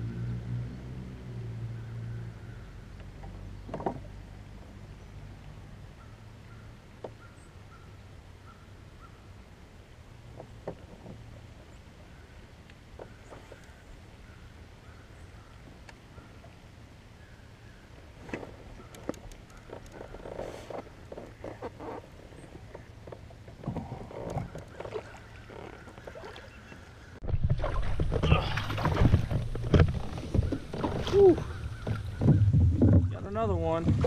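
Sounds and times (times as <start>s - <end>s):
clicks and knocks of rod and hull: 3.0s - 4.2s, 10.3s - 12.1s, 18.3s - 34.0s
wind rumble on microphone: 27.2s - 34.0s.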